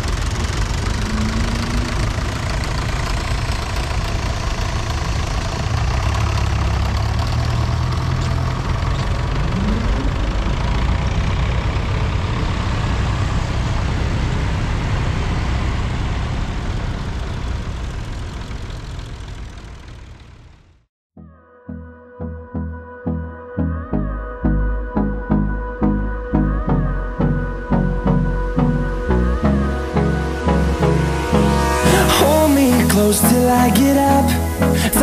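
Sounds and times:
tractor engines driving past: 0:00.0 - 0:20.9, 0:27.0 - 0:35.0.

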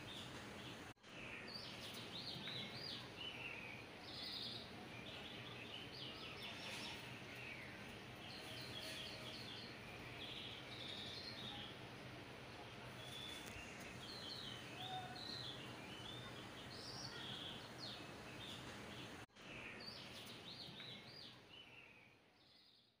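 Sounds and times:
birds chirping: 0:00.0 - 0:22.9.

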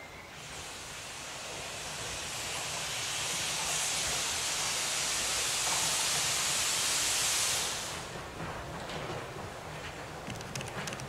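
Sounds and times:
steam hissing from locomotive: 0:00.1 - 0:08.4.

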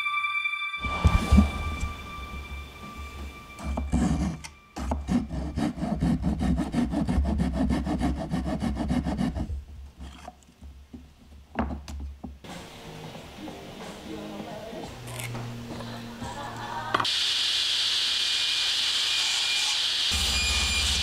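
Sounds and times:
hand saw cutting wood: 0:03.6 - 0:10.4.

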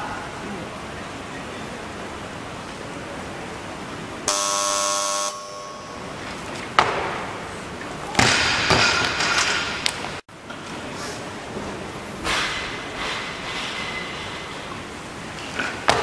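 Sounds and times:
electronic buzzer: 0:04.3 - 0:06.0
barbell crashing and bouncing: 0:08.1 - 0:10.0.

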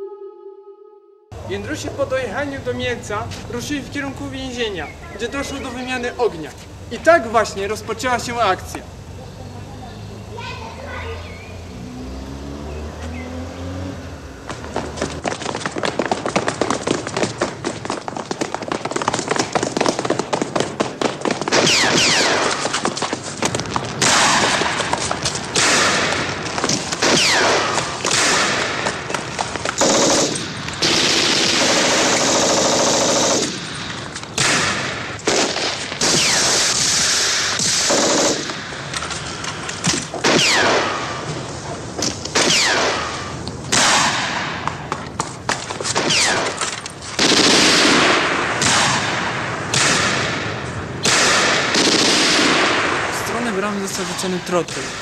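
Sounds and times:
falling whines: 0:00.0 - 0:01.8, 0:07.3 - 0:15.6
machine-gun fire: 0:14.7 - 0:41.3, 0:42.3 - 0:55.0
single gunshots: 0:21.0 - 0:22.9, 0:24.0 - 0:29.0, 0:34.4 - 0:38.8, 0:39.9 - 0:41.2, 0:42.3 - 0:44.7, 0:45.9 - 0:53.2.

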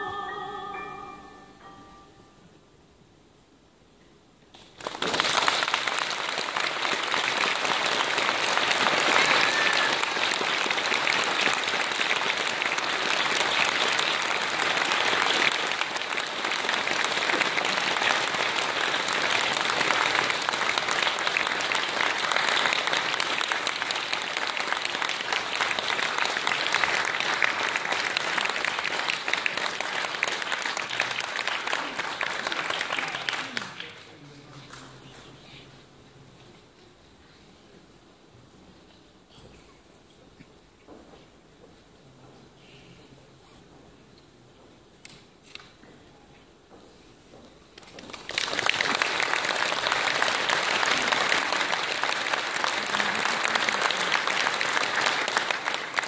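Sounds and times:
audience applauding: 0:04.5 - 0:35.0, 0:47.8 - 0:56.0.

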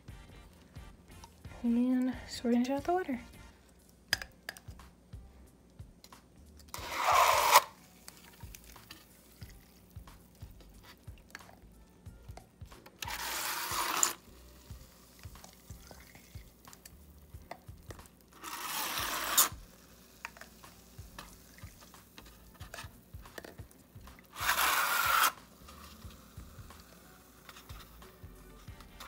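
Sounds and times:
plastic syringe clicks and taps: 0:04.1 - 0:05.0
water squirting from syringe: 0:15.2 - 0:26.8.

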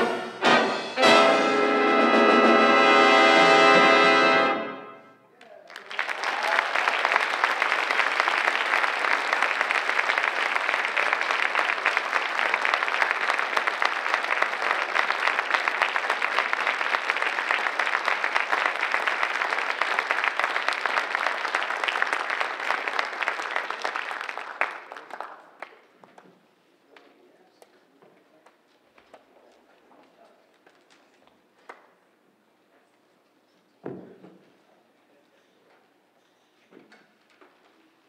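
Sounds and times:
audience applauding: 0:05.4 - 0:26.2.

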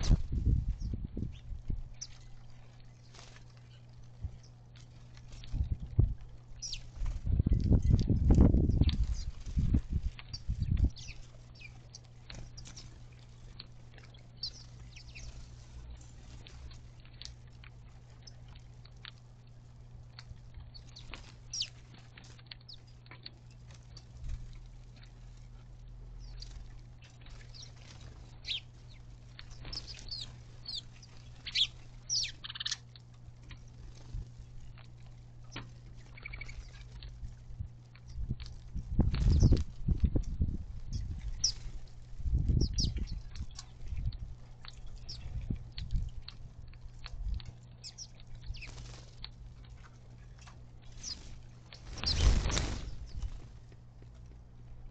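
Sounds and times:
rush of bird wings: 0:00.0 - 0:01.8, 0:38.2 - 0:43.3, 0:48.5 - 0:49.3, 0:50.9 - 0:53.6
sparrows chirping: 0:00.0 - 0:38.4, 0:39.0 - 0:39.6, 0:40.8 - 0:53.4
buzzy bird note: 0:50.9 - 0:53.4.

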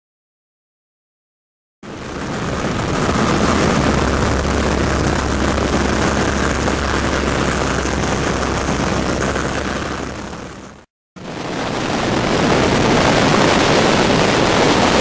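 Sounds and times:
biplane engine running: 0:01.8 - 0:12.3
slipstream wind on microphone: 0:01.8 - 0:15.0.

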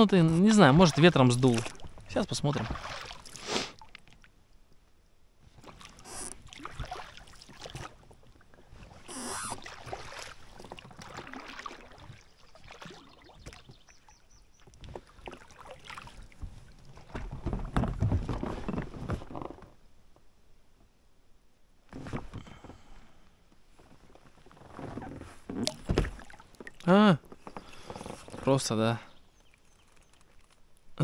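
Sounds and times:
oars pulling through water: 0:00.3 - 0:04.2, 0:05.4 - 0:19.8, 0:23.7 - 0:30.8
water splashing: 0:00.3 - 0:04.3, 0:05.6 - 0:17.7, 0:25.6 - 0:27.0.

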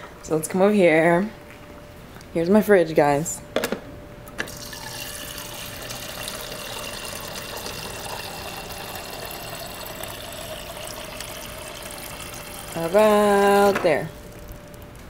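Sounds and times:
faint hum: 0:00.0 - 0:15.0
water streaming into plastic cup: 0:04.5 - 0:14.6.

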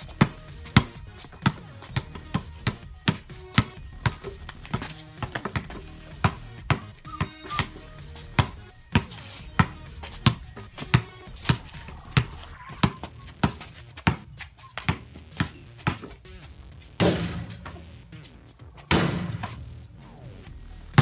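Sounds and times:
basketball dribbled on asphalt: 0:00.0 - 0:21.0
loud bangs: 0:17.0 - 0:18.0.

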